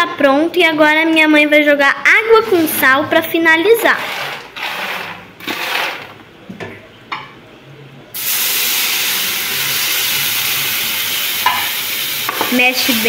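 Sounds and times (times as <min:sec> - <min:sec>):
wooden spoon scraping tray: 0:02.3 - 0:06.2
water hissing into steam: 0:08.2 - 0:13.0.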